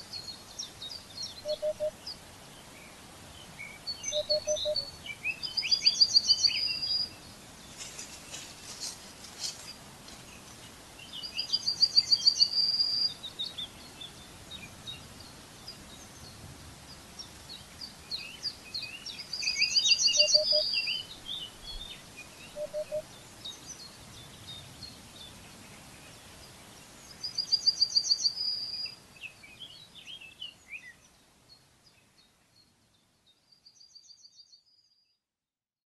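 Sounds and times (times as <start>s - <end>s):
bird chirps: 0.1s - 2.1s, 3.7s - 7.1s, 17.5s - 24.6s
songbird fast high trill: 4.1s - 4.9s.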